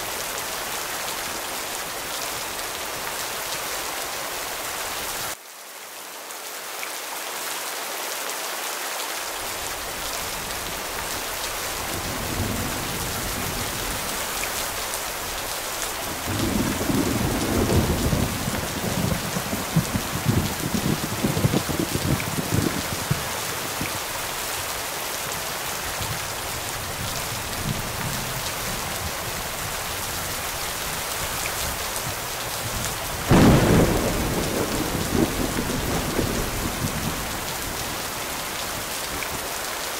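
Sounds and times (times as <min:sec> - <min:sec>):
steady rain falling: 0:00.0 - 0:39.9
thunder rumbling: 0:11.6 - 0:24.2, 0:31.7 - 0:38.9
loud thunderclap: 0:16.2 - 0:23.4, 0:33.2 - 0:37.8.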